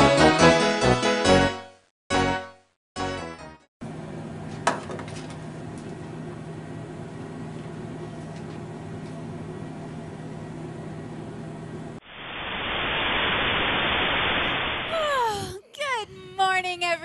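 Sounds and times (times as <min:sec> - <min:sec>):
book set down on wooden desk: 0:04.6 - 0:05.4.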